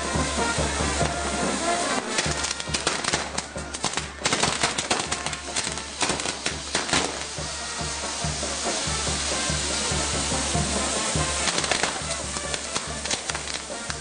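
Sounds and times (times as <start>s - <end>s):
fireworks crackling and popping: 0.0s - 14.0s.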